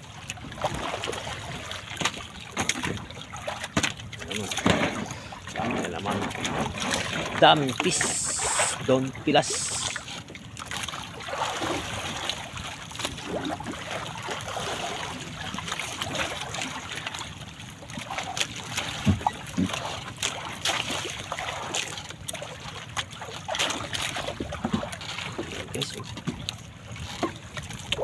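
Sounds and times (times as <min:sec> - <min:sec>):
water splashing and trickling: 0:00.0 - 0:28.0.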